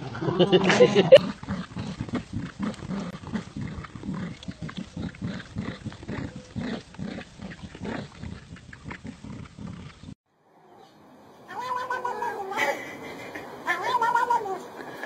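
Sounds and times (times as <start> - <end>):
dogs growling: 0.0 - 10.2.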